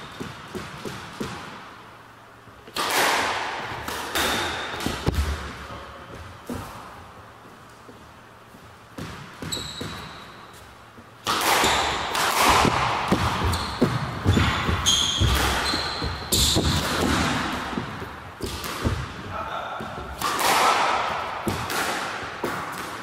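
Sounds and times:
squash ball hitting rackets and walls: 0.0 - 1.9, 2.6 - 8.0, 8.8 - 23.0
shoes squeaking on wooden floor: 9.4 - 10.8, 13.2 - 17.1.

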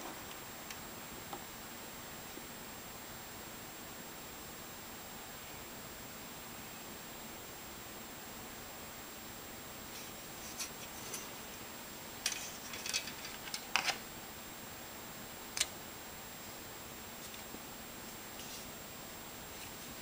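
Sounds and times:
steady hiss with high whine: 0.0 - 20.0
plastic pieces clicking: 12.2 - 14.0.

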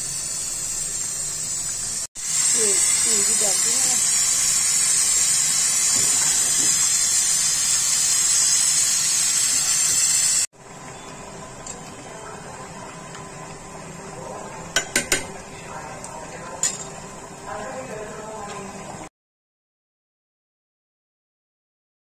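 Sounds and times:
loud sizzling hiss: 0.0 - 10.5
pot simmering: 0.0 - 19.0
ladle clinking against pot: 14.8 - 15.4.

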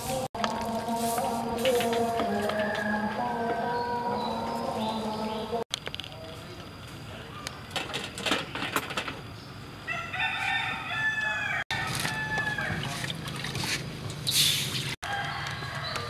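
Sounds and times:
rooster crowing: 2.2 - 4.0, 9.9 - 12.9, 15.0 - 16.0.

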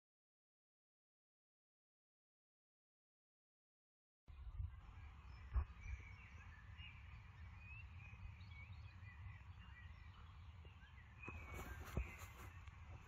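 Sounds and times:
birds chirping: 4.3 - 13.0
wind rumble: 4.3 - 13.0.

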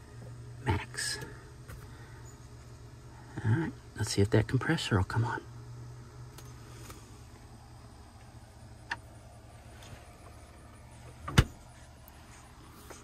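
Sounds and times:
refrigerator compressor humming: 0.0 - 13.0
refrigerator door thump: 11.2 - 11.6.

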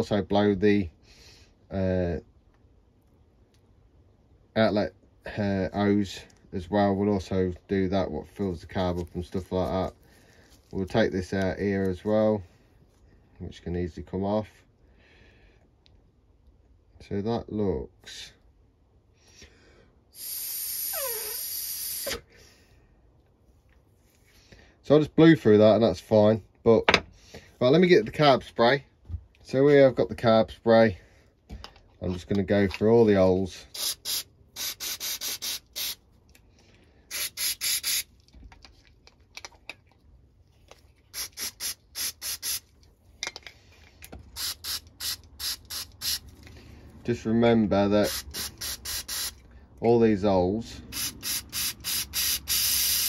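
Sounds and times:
person blowing air hiss: 20.1 - 22.5, 33.7 - 36.0, 37.0 - 38.1, 41.1 - 42.7, 44.3 - 46.6, 48.0 - 49.4, 50.8 - 53.0
aerosol spray squirts: 33.7 - 36.0, 37.1 - 38.1, 41.0 - 42.7, 44.3 - 46.3, 48.0 - 49.4, 50.9 - 53.0.

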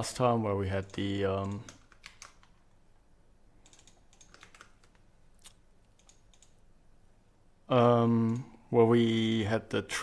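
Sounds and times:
keyboard and mouse clicks: 0.8 - 2.6, 3.6 - 6.6.

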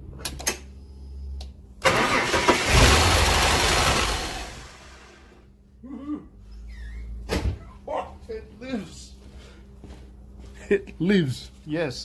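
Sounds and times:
starter motor cranking engine: 1.8 - 5.1
car engine running loudly: 1.9 - 5.1.

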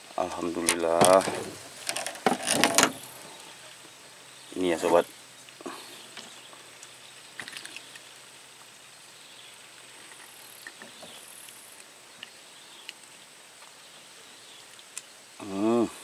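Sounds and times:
small clicks and knocks: 6.1 - 8.1.

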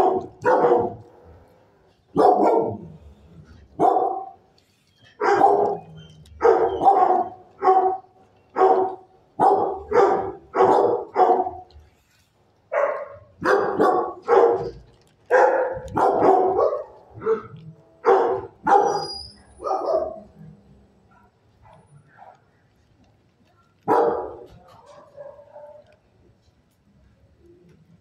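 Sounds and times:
dog barking: 0.0 - 1.2, 2.1 - 3.0, 3.8 - 4.4, 5.2 - 11.7, 12.7 - 20.4, 21.1 - 22.5, 23.8 - 26.0.

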